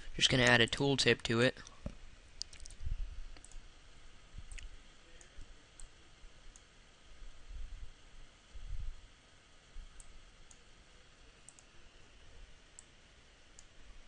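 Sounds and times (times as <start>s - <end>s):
computer mouse clicks: 2.4s - 2.8s, 3.4s - 3.6s, 11.5s - 11.7s.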